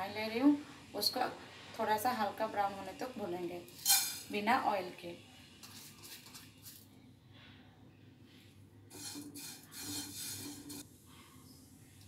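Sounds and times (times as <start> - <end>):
spatula stirring noodles in a pan: 8.9 - 10.9.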